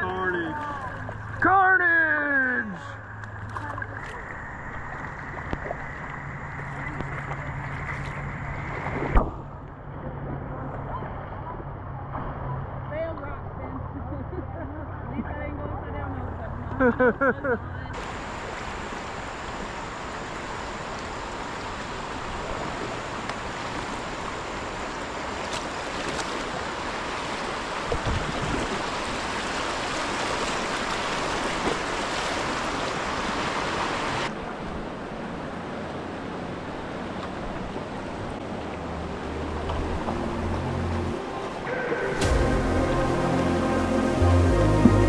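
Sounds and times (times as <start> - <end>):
whitewater rushing: 18.0 - 45.0.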